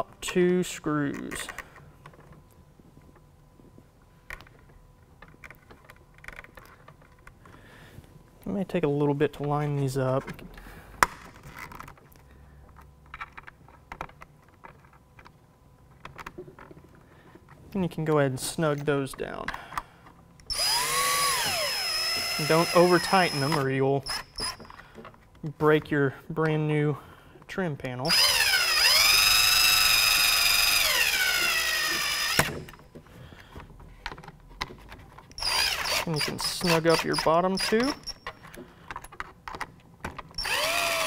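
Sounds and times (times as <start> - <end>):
cordless drill driving screw: 20.5 - 24.7, 28.1 - 32.8, 35.4 - 38.2, 40.4 - 41.0
clicks of screws and plastic: 27.8 - 41.0.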